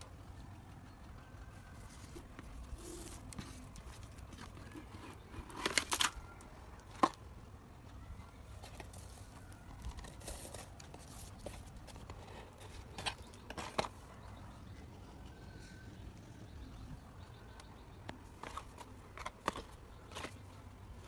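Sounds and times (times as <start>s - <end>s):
paper rustling and crinkling: 1.8s - 7.2s, 8.6s - 14.0s, 18.3s - 21.0s.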